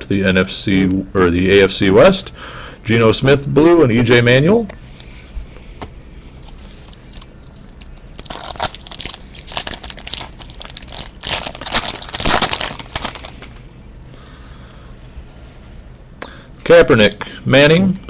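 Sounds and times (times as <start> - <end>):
foil wrapper tearing and crinkling: 6.5 - 13.6.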